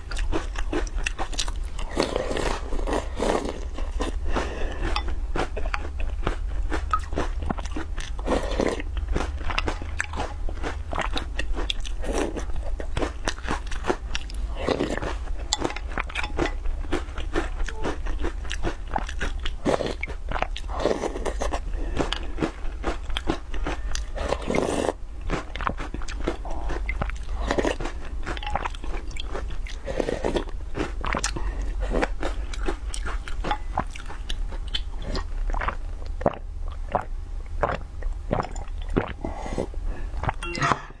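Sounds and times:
chewing and crunching: 0.0s - 40.4s.

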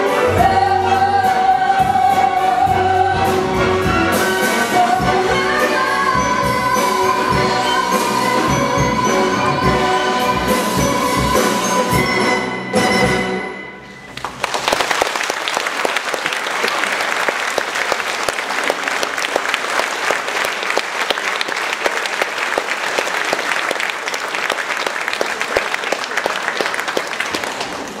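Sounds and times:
audience applauding: 14.0s - 28.0s.

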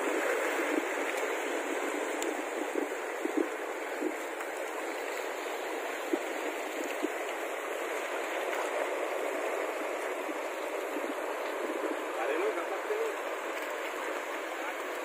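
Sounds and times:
sea water washing along shore: 0.0s - 15.0s
faint ticks: 0.1s - 8.8s.

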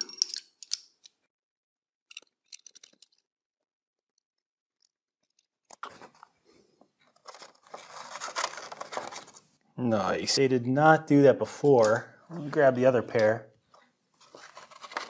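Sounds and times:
small metallic clicks: 0.0s - 1.2s, 2.1s - 3.3s.

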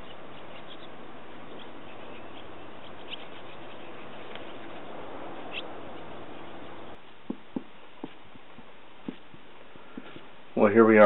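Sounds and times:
swallows chirping: 0.0s - 7.0s
steady rushing noise: 0.0s - 11.0s.

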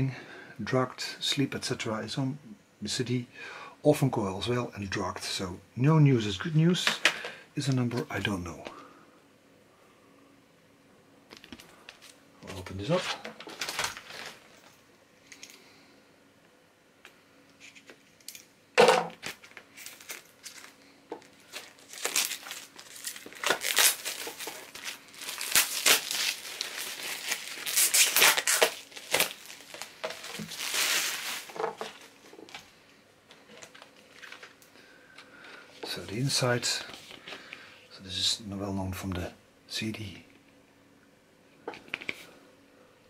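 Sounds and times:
plastic shrink-wrap tearing and crinkling: 12.9s - 14.6s, 19.2s - 32.6s.

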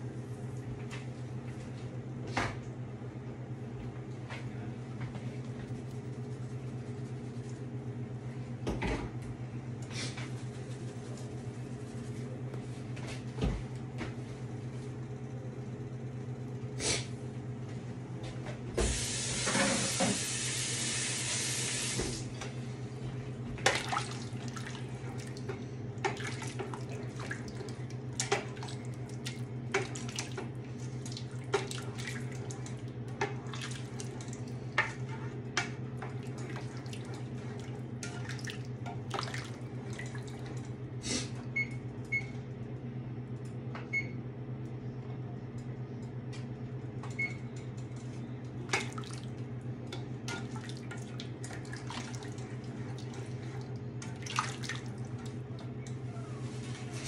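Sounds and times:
steady low hum: 20.8s - 57.0s.

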